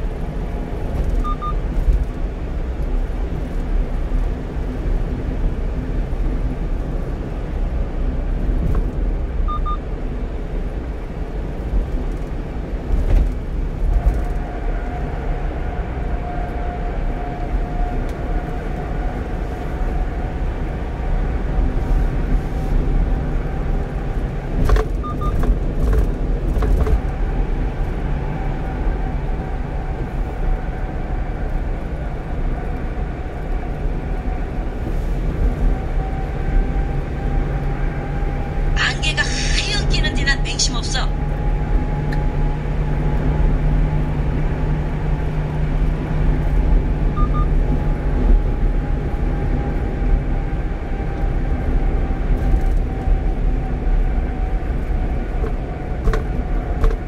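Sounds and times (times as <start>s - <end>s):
truck engine and tyre rumble: 0.0s - 57.0s
electronic double beep: 1.2s - 1.6s, 9.5s - 9.8s, 47.2s - 47.5s.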